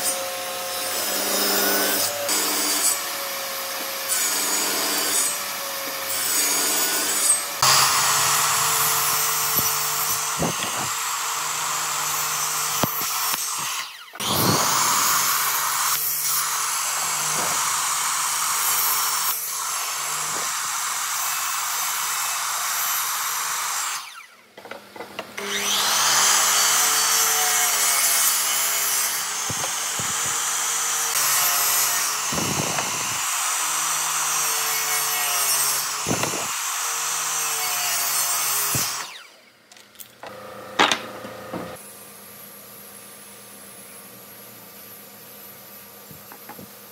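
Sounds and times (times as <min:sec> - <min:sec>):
circular saw cutting boards: 0:00.0 - 0:39.5, 0:40.2 - 0:46.9
saw motor spinning up whine: 0:07.6 - 0:16.0.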